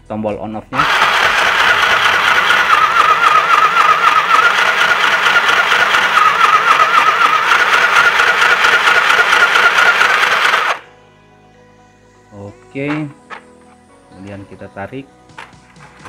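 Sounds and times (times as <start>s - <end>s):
sewing machine rattling: 0.8s - 10.8s
small motor whine: 0.8s - 10.9s.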